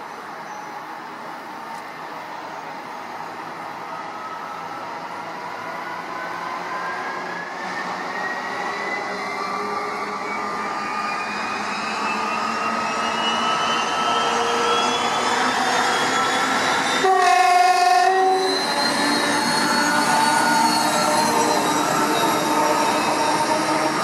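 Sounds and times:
diesel locomotive accelerating: 0.2s - 24.0s
locomotive horn blast: 17.0s - 18.5s.

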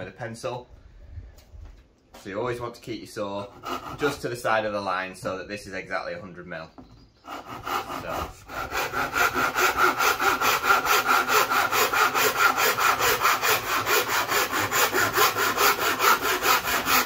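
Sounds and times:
handsaw cutting board: 3.4s - 4.4s, 7.2s - 17.0s.

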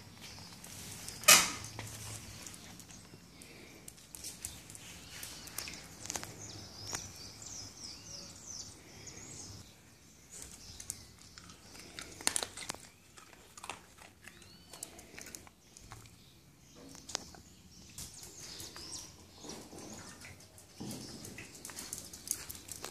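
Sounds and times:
birds chirping: 0.0s - 22.9s
dogs chewing food: 10.2s - 22.9s.

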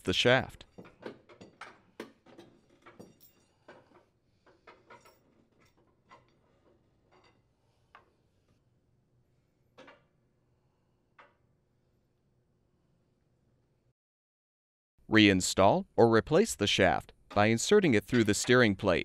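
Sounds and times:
metal parts clicking and clinking: 0.8s - 7.4s, 17.3s - 18.7s.

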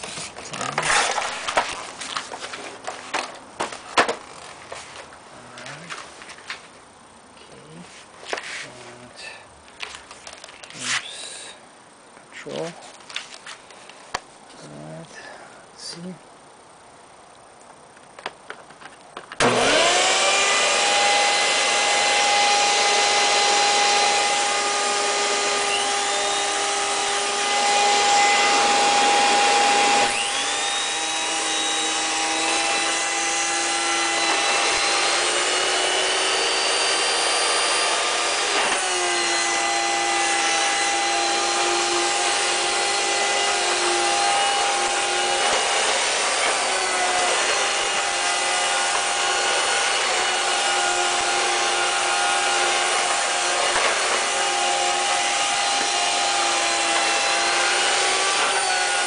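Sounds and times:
vacuum cleaner motor whine: 19.3s - 59.0s.

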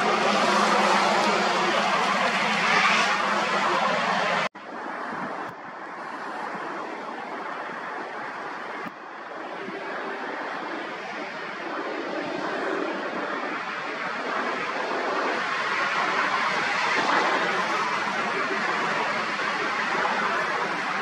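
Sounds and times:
jet airliner flying by: 0.0s - 4.5s
louder jet rush: 0.0s - 5.5s.

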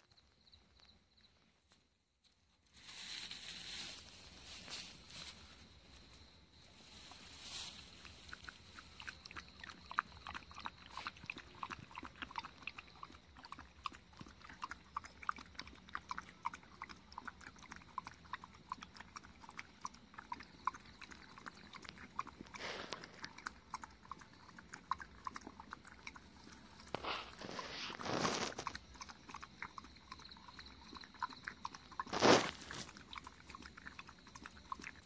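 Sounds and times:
dog lapping water: 8.1s - 35.0s.

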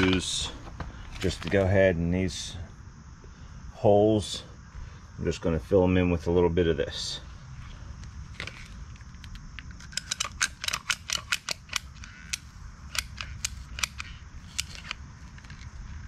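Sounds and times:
caulking gun clicking: 9.2s - 15.6s.

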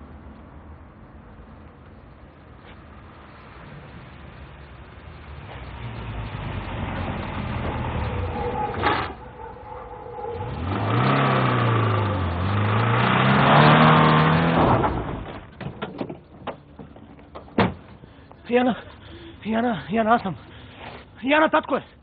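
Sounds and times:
car engine revving: 5.4s - 15.5s.

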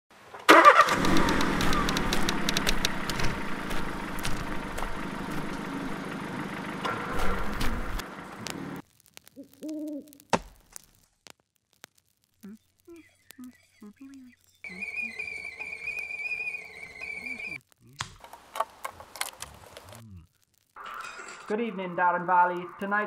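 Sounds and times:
loud noise with low rumble: 0.9s - 8.8s
owl hoot: 1.3s - 2.4s, 9.4s - 10.2s, 12.9s - 17.6s.

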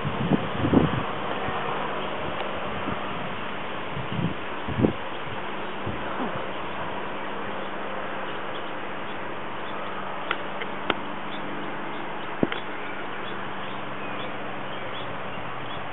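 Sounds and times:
outdoor background hiss: 0.0s - 15.9s
faint bird chirps: 11.0s - 15.9s.

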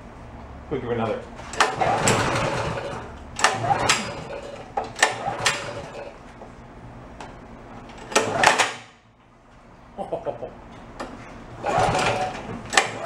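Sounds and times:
engine turning over with clacks: 1.4s - 6.2s, 8.0s - 8.9s, 11.6s - 13.0s.

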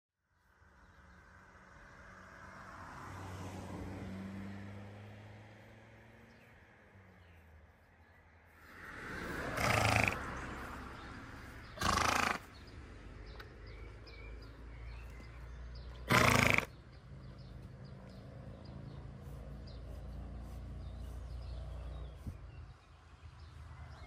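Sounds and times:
pony snorting: 9.4s - 10.4s, 11.7s - 12.6s, 16.0s - 16.8s.

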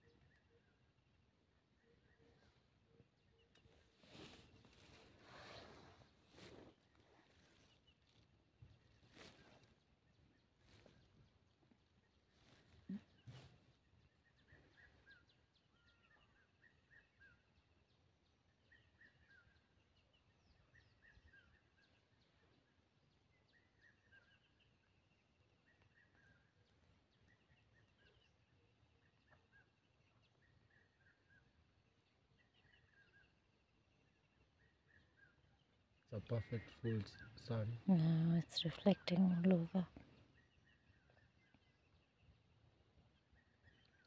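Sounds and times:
small birds chirping: 0.0s - 44.0s.

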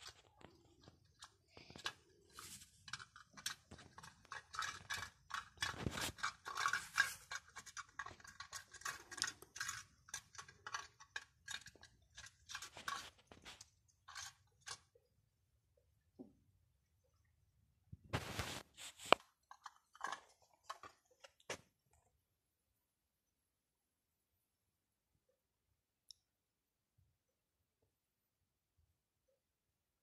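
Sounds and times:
cat lapping and chewing: 0.0s - 15.0s.

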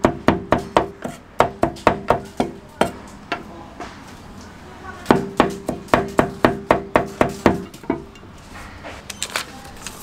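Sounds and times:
cleaver chopping on metal: 0.0s - 3.4s, 5.1s - 8.1s.

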